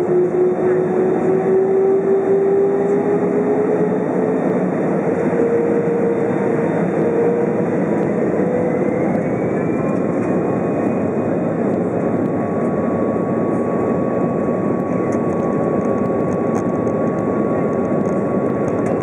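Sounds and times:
high engine whine: 0.0s - 19.0s
jet engines spooling up: 0.0s - 19.0s.

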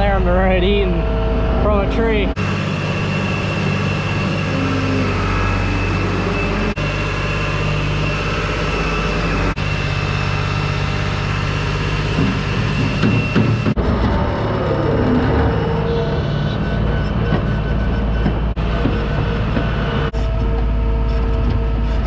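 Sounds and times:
skid loader engine running: 0.0s - 22.0s.

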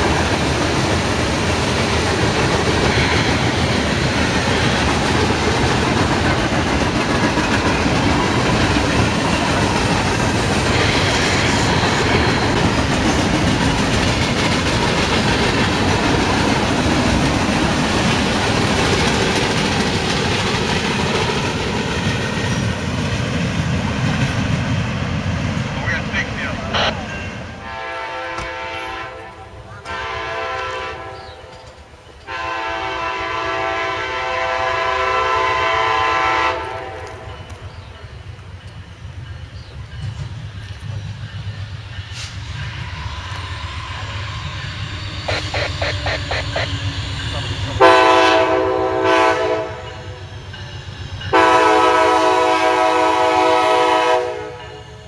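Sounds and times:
wheels clicking over rail joints: 0.0s - 24.6s
freight train rumbling: 0.0s - 55.0s.

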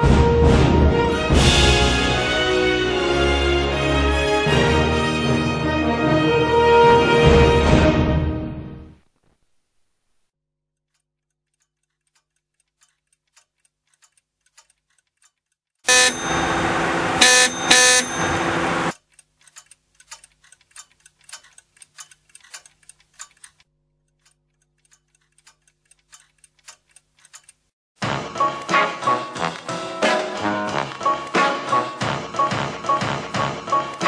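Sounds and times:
short blips: 15.9s - 18.6s
alarm-like tone: 15.9s - 18.9s
uneven ticking: 18.9s - 27.7s.

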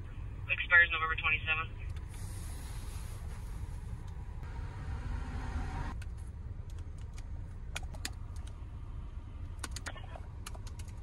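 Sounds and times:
laptop keyboard keystrokes: 9.6s - 11.0s.

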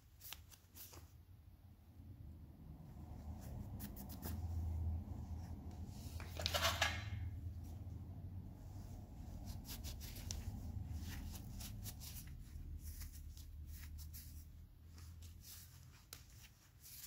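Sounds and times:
cloth rag rubbing and wiping: 2.8s - 6.2s, 7.5s - 17.0s.

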